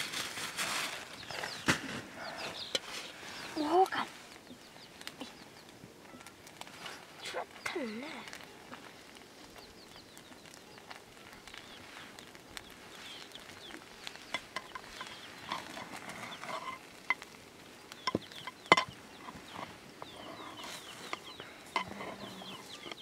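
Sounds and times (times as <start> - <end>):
chickens calling: 0.0 - 23.0
small birds calling: 0.0 - 23.0
metal ladle scraping pot: 14.6 - 17.2, 18.4 - 23.0.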